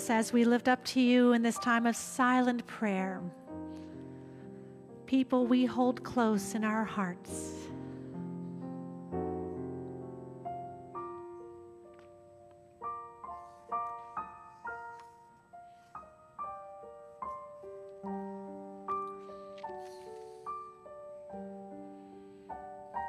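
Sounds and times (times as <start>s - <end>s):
soft slow piano music: 0.0s - 23.0s.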